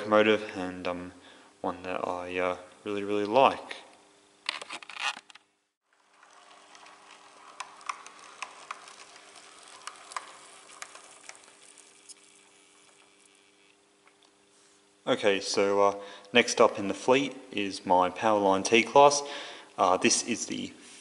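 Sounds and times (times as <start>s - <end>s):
model train motor hum: 5.9s - 13.8s
wheels clicking over rail joints: 6.0s - 11.4s.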